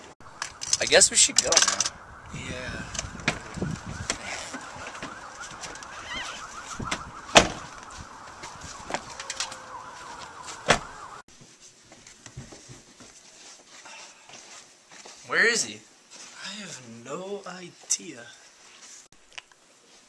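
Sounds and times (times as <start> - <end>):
warbling high tone: 0.2 - 11.2
car doors shutting with thuds: 3.0 - 5.8, 6.7 - 7.8, 10.4 - 11.1.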